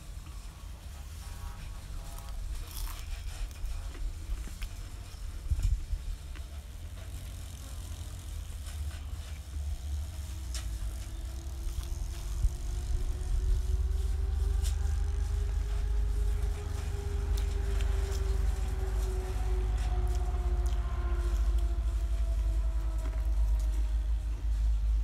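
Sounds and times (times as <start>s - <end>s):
motor hum: 0.0s - 25.0s
deep rumble: 1.6s - 25.0s
person chewing crispy food: 2.2s - 3.1s.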